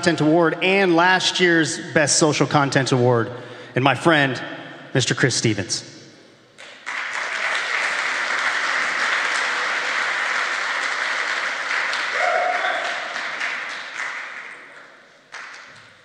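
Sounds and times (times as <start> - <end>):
audience applauding: 6.6 - 15.9.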